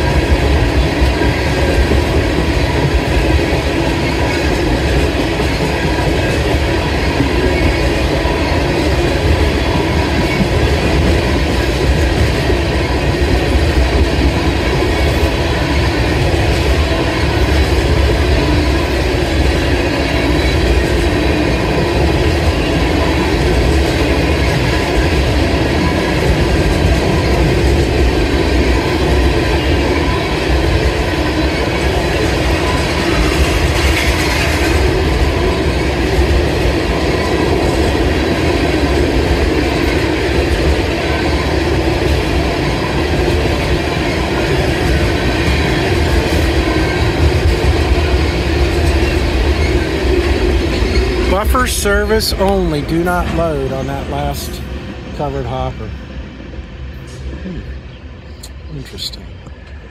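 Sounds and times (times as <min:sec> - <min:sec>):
steel wheels on rails: 0:00.0 - 0:55.8
freight train rolling past: 0:00.0 - 0:59.9.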